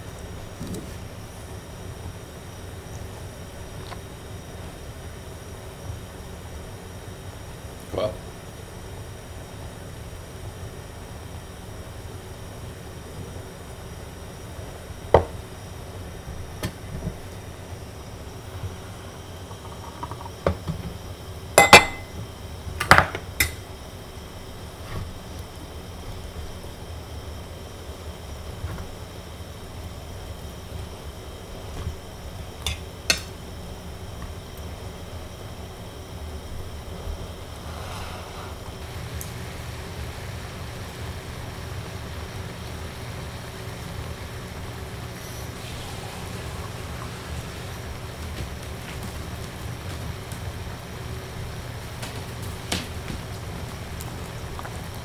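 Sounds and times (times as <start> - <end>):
metal pot knocking on burner stove: 21.6 - 22.1
hiss: 37.4 - 51.8.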